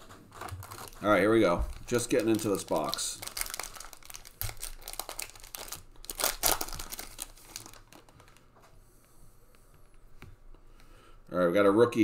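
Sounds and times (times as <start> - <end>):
foil wrapper tearing and crinkling: 0.3 - 8.4.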